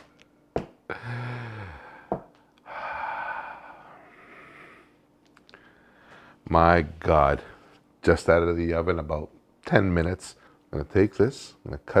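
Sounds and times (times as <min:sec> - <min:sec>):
man humming in appreciation: 0:00.9 - 0:03.8
long breathy breath: 0:00.9 - 0:06.4.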